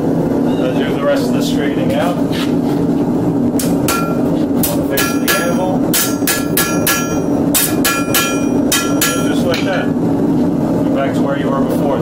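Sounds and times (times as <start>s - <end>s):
hammer striking metal anvil: 3.6s - 9.8s.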